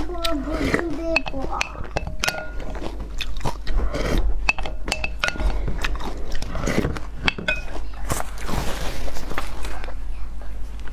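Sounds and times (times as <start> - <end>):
wet chewing and slurping: 0.0 - 10.0
spoon clinking against glass bowl: 1.2 - 2.8, 4.5 - 5.6, 7.2 - 7.8.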